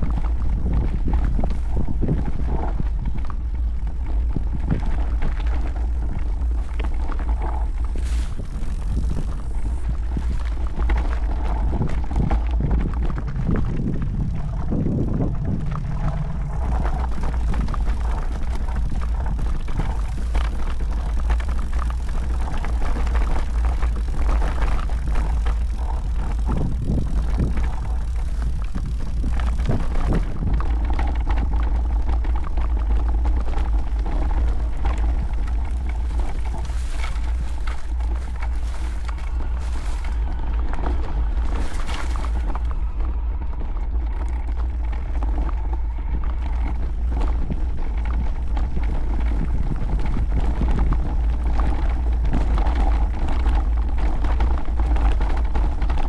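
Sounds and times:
bike knocking over stones: 0.0s - 43.0s, 43.8s - 56.0s
mountain bike tyres on dirt: 0.0s - 56.0s
wind buffeting microphone: 0.0s - 56.0s.

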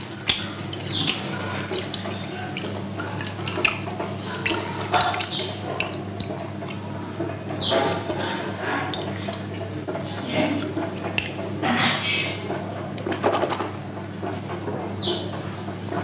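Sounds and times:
water splashing into steel bowl: 0.1s - 6.8s.

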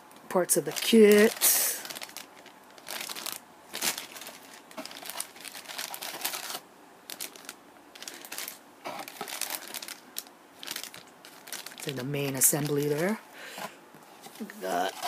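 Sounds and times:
plastic bag crinkling: 0.4s - 15.0s.

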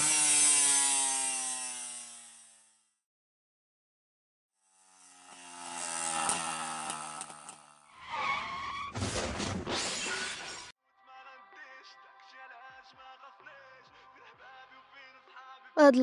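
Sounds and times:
cartoon moped engine: 0.0s - 2.9s, 4.7s - 8.4s
tyre screech and skidding scrape: 5.2s - 10.7s.

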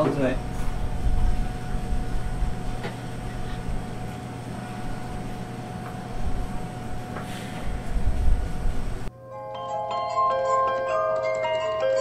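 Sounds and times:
kitchen machinery hum: 0.0s - 9.1s.

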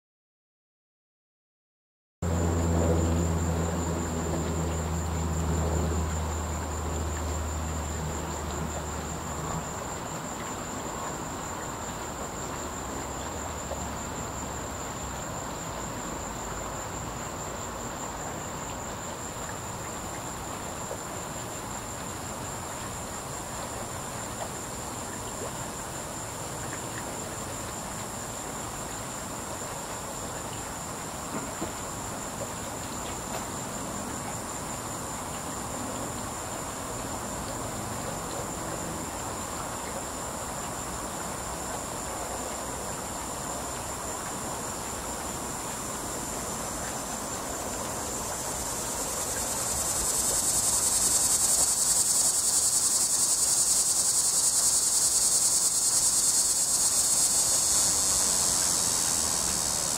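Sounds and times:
cicada buzzing: 2.3s - 15.6s, 46.2s - 59.9s
high-pitched insect trill: 2.3s - 59.9s.

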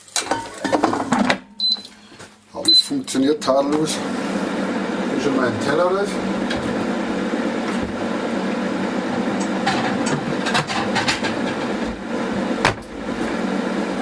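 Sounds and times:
air fryer fan whirring: 2.6s - 14.0s
cupboard door shutting: 12.6s - 13.0s.

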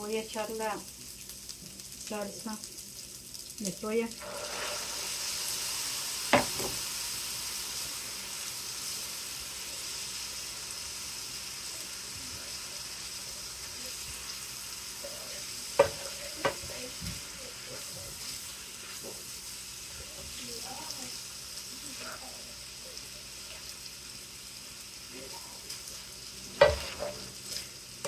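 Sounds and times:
rice sizzling in a skillet: 0.0s - 28.0s
spoon knocking against pan: 6.3s - 6.8s, 15.8s - 16.7s.

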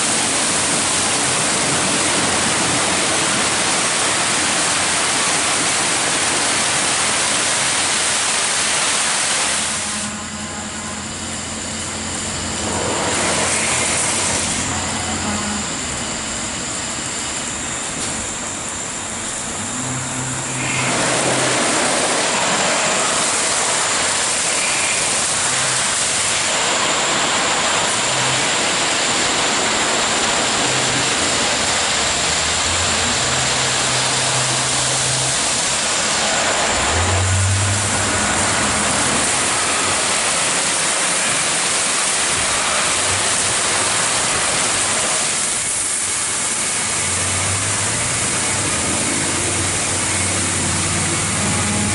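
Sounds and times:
low motor hum: 9.7s - 23.4s, 27.2s - 40.7s, 42.3s - 51.9s.

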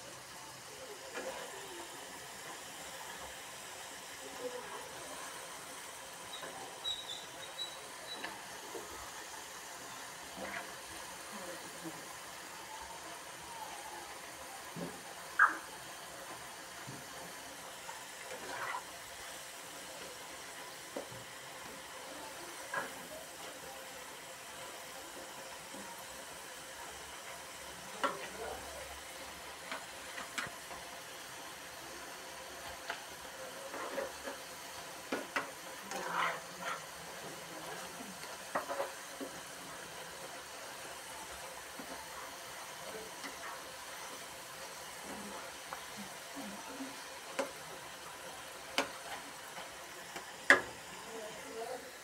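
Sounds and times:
fries sizzling in hot oil: 0.0s - 52.0s
metal skimmer scraping pan: 35.9s - 36.9s.

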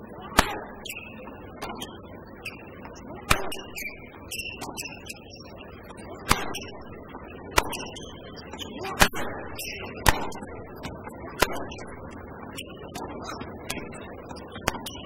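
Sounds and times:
background murmur: 0.0s - 15.0s
tennis ball racket hits: 0.3s - 2.6s, 3.2s - 5.2s, 6.2s - 6.8s, 7.5s - 11.9s.

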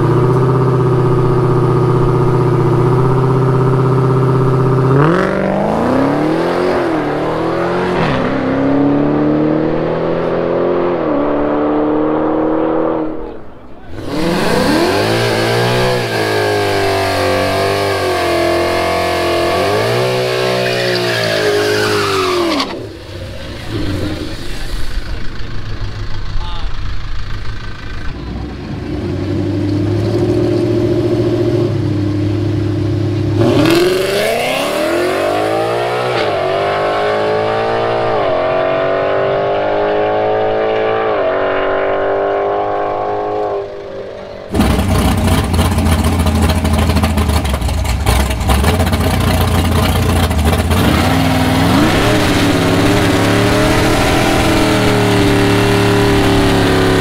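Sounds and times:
car engine launching with upshifts: 4.7s - 25.9s, 33.2s - 57.0s
drag car engine running loud: 44.5s - 57.0s.

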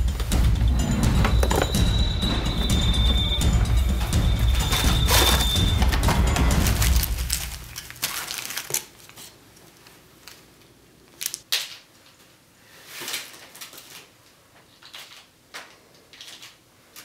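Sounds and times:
packaging crinkling: 4.6s - 10.4s, 11.1s - 11.8s.

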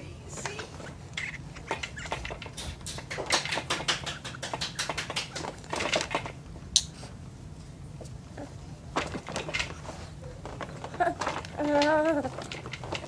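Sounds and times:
baby chewing on pacifier clicks: 1.2s - 7.0s.

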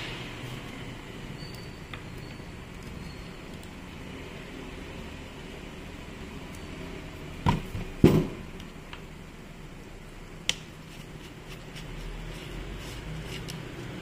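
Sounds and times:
loud knocks on workbench: 7.4s - 8.4s.

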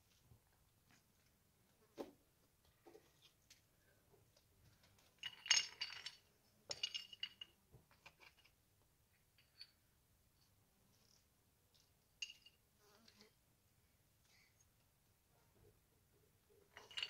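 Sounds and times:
shards clinking: 16.7s - 17.0s.

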